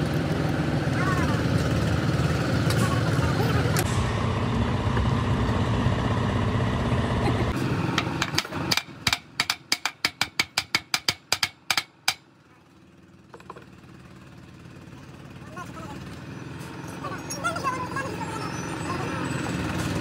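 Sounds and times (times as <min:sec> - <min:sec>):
low engine drone: 0:00.0 - 0:09.4.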